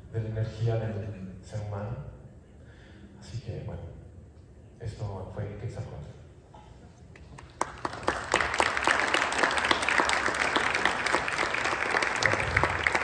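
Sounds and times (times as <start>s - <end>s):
audience applauding: 7.4s - 13.0s.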